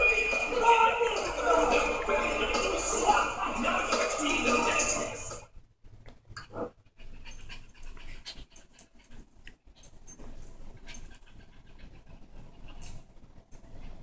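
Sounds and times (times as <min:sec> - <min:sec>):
dog panting: 0:06.8 - 0:14.0.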